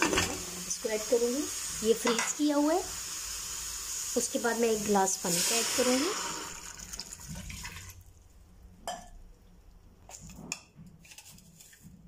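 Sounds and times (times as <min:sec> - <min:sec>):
water pouring into pot: 0:00.1 - 0:08.4.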